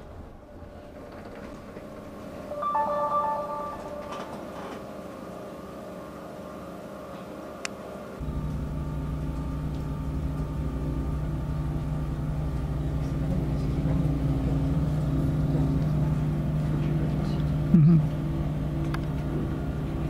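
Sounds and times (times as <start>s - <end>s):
low engine drone: 2.5s - 4.8s
short electronic tone: 2.5s - 4.9s.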